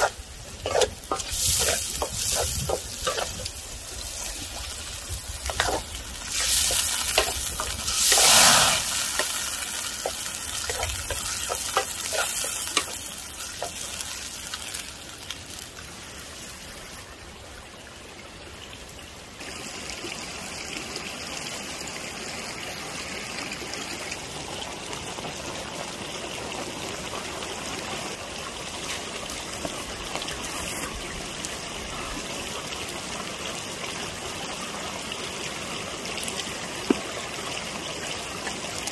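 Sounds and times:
wooden spatula scraping: 0.0s - 4.4s, 5.4s - 13.8s
food sizzling in a wok: 0.0s - 17.0s
steady watery rush: 0.0s - 38.9s.

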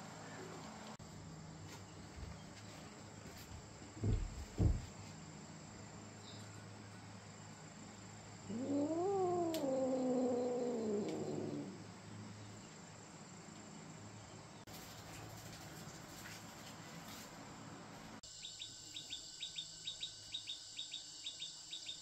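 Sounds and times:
cat yowling: 8.5s - 11.8s.

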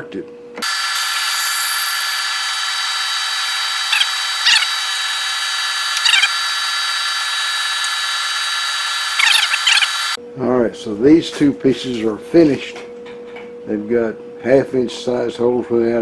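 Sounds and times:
milling machine spindle running: 0.6s - 10.2s
drill squealing in steel: 0.7s - 10.2s.

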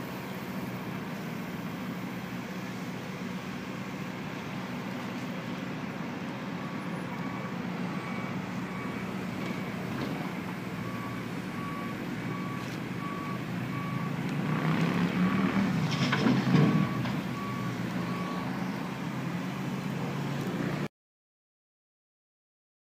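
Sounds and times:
diesel engine running: 0.0s - 20.9s
reversing alarm beeping: 6.6s - 9.9s, 10.8s - 14.2s, 16.6s - 18.6s.

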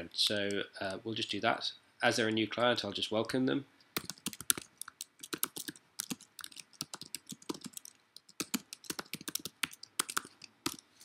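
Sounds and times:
typing on computer keyboard: 4.0s - 10.8s.

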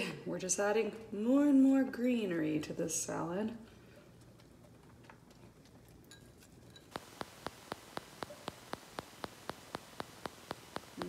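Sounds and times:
faint clicks: 6.9s - 11.0s
steady ticking: 6.9s - 11.0s.

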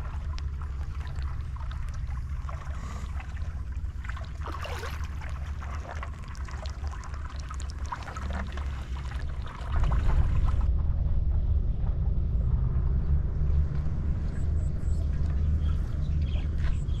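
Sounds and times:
water trickling over dirt road: 0.0s - 10.7s
steady low rumble: 0.0s - 17.0s.

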